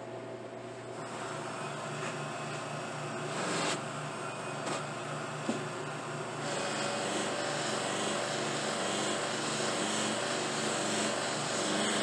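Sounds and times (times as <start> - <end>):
buffing machine whirring: 1.0 - 12.0
pipe hissing against polishing wheel: 6.4 - 12.0.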